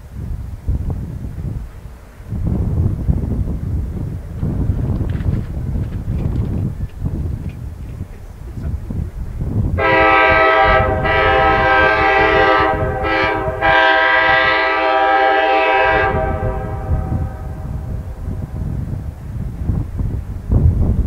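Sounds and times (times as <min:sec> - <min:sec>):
low rumble of train: 0:00.0 - 0:21.0
wind: 0:00.0 - 0:21.0
locomotive air horn: 0:09.8 - 0:18.2.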